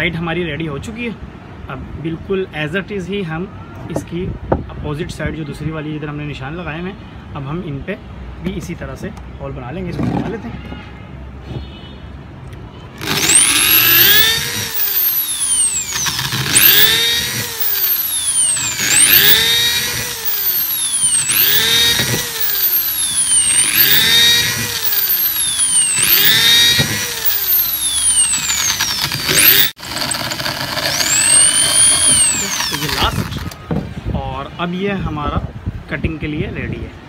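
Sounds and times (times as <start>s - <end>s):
electric drill boring into bamboo: 13.0s - 33.6s.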